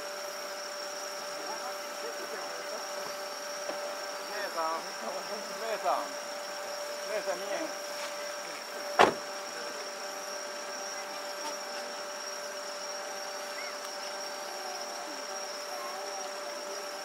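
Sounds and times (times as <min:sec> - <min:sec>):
night insects chorus: 0:00.0 - 0:17.0
firework bang: 0:09.0 - 0:09.2.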